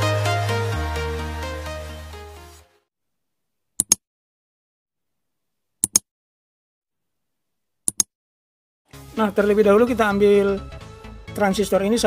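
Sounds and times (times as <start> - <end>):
button double clicks: 3.8 - 4.0, 5.8 - 6.0, 7.9 - 8.1.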